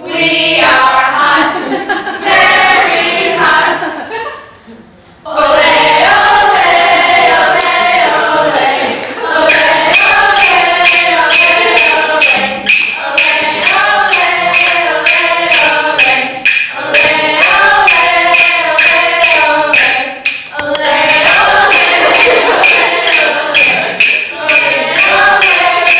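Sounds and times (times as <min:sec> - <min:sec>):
choir singing: 0:00.0 - 0:04.2, 0:05.3 - 0:25.9
sharp percussion strikes: 0:05.6 - 0:25.9.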